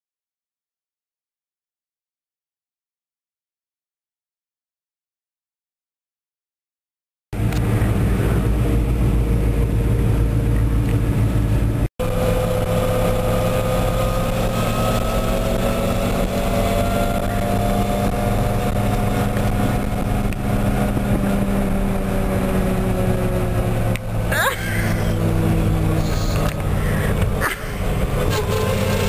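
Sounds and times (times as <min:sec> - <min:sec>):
pickup truck engine running: 0:07.4 - 0:15.8, 0:18.3 - 0:29.0
road and wind noise: 0:07.4 - 0:29.0.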